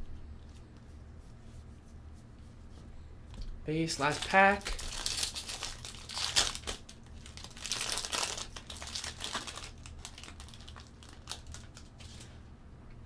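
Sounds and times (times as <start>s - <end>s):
wrapper tearing and crinkling: 3.8s - 12.3s
cards rustling and clicking: 3.8s - 12.4s.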